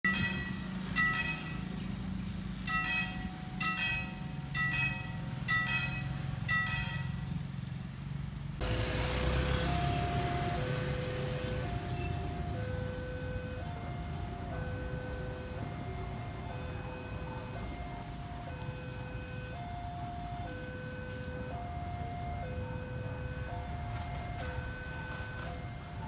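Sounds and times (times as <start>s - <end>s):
level crossing warning bell: 0.0s - 7.6s, 8.6s - 26.0s
two-tone electronic alarm: 9.5s - 26.0s.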